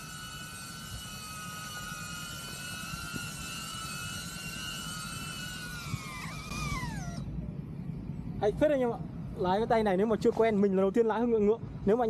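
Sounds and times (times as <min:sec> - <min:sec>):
drone propellers whining: 0:00.0 - 0:08.3.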